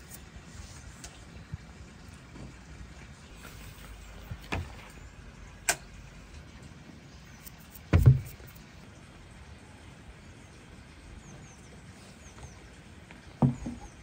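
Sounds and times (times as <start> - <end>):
dull knocks on wooden board: 7.9 - 8.4, 13.4 - 13.9.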